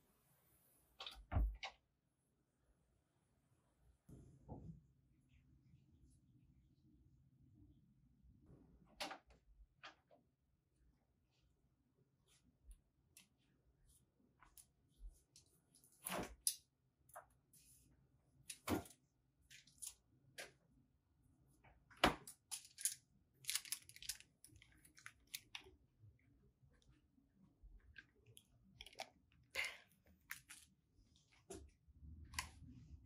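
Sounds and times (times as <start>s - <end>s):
crinkly rustles: 22.5s - 25.7s.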